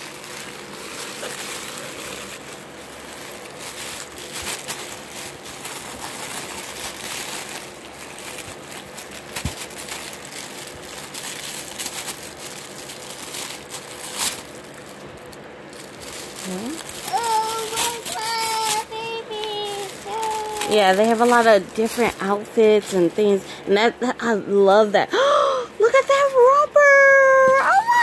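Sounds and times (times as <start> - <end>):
hands digging through cardboard box: 0.0 - 15.0, 15.7 - 22.4
tissue paper rustling and crinkling: 0.0 - 23.4.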